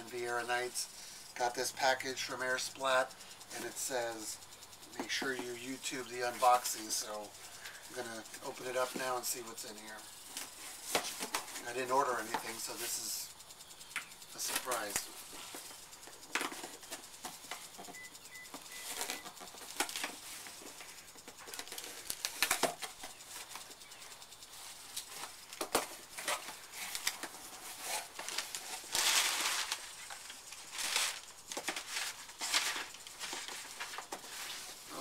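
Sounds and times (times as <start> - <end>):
knife cutting packing tape: 18.8 - 20.2, 21.4 - 23.6
paper rustling: 24.5 - 35.0.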